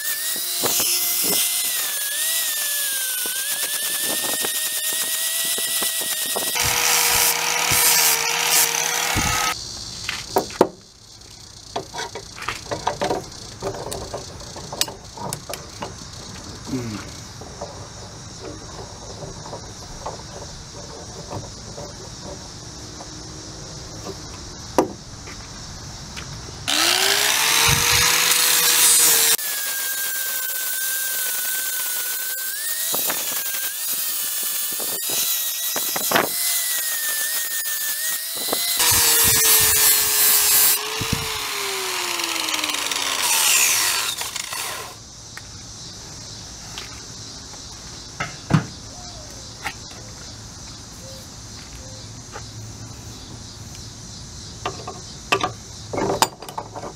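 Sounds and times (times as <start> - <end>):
angle grinder grinding metal: 0.0 - 9.6, 26.7 - 45.0.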